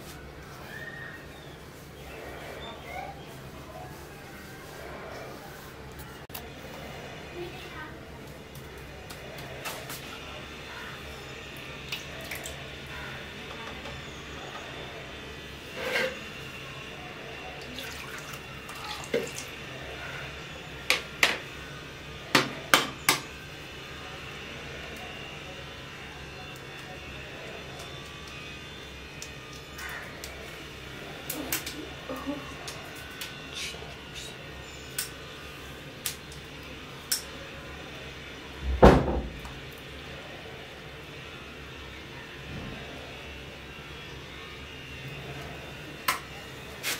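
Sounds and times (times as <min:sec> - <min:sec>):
water pouring from a jug: 0:17.7 - 0:19.5.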